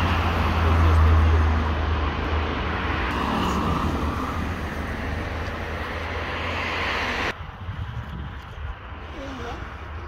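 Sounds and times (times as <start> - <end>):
highway traffic passing: 0.0 - 10.0.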